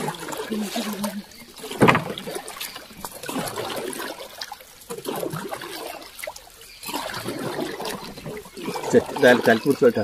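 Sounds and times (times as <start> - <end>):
water splashing and trickling: 0.0 - 10.0.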